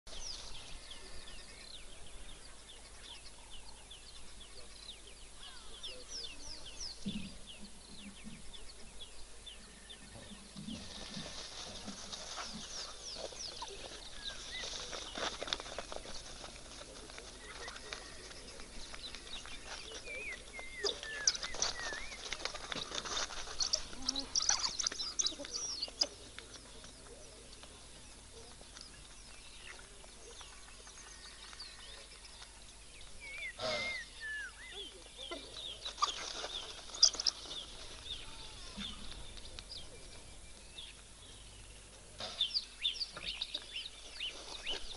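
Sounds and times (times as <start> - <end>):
wild dogs chirping: 10.8 - 28.6, 33.2 - 40.0.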